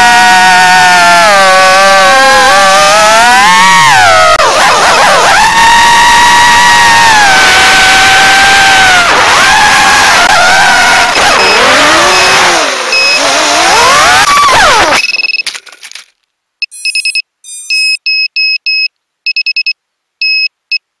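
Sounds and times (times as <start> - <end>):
quadcopter motors whining: 0.0 - 15.0
short electronic beeps: 11.1 - 13.5, 14.8 - 15.5, 16.6 - 20.8.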